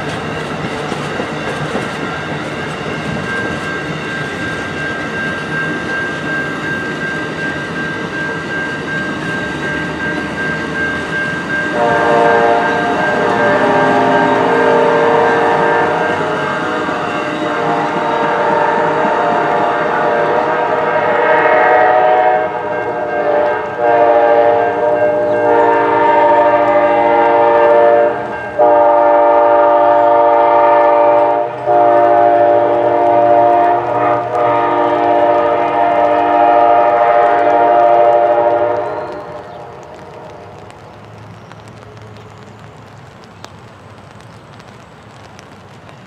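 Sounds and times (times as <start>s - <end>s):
train air horn blasts: 11.7s - 40.6s.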